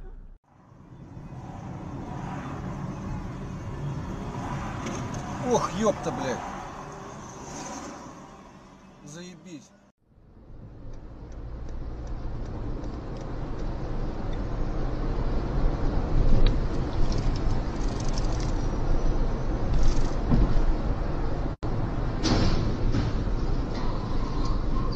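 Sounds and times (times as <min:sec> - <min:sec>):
car driving through tunnel: 0:00.0 - 0:17.5.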